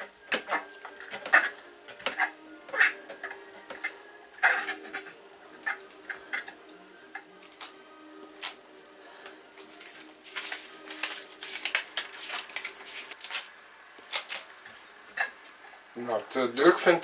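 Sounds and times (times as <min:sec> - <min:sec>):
cardboard card rustling: 0:09.6 - 0:15.3.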